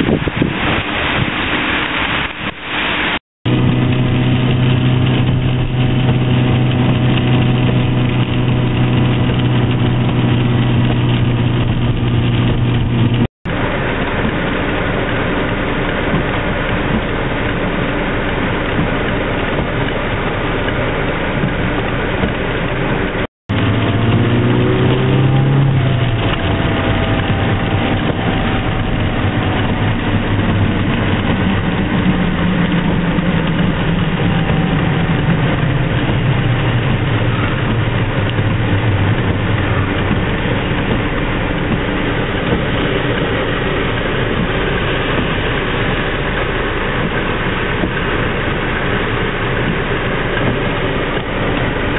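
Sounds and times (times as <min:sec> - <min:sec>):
heavy rain hiss: 0:00.0 - 0:51.9
car engine from inside: 0:03.5 - 0:51.9.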